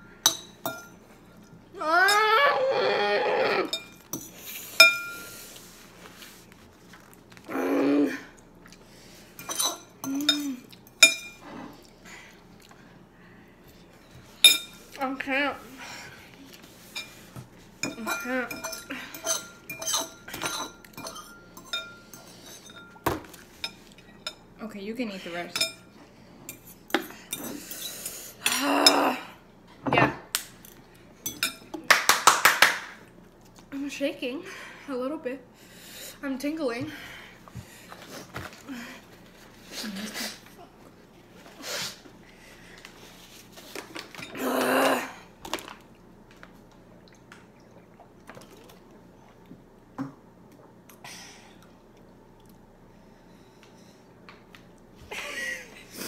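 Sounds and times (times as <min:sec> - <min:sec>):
forks clinking on ceramic bowl: 0:00.2 - 0:01.0, 0:03.7 - 0:05.2, 0:09.4 - 0:11.4, 0:17.8 - 0:23.0.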